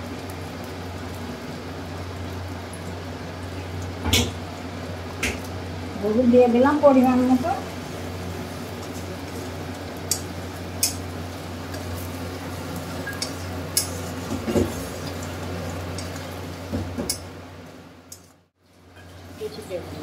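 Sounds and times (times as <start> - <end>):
spatula scraping paste frying in oil: 11.7 - 16.3.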